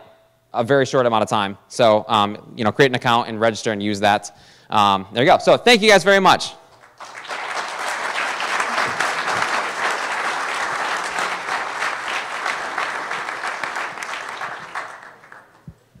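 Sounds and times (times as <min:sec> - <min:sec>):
audience applause: 0:06.8 - 0:15.7.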